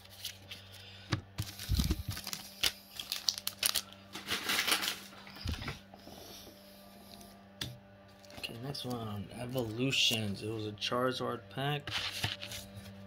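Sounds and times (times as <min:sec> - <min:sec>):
crinkly rustle: 0:01.4 - 0:05.8.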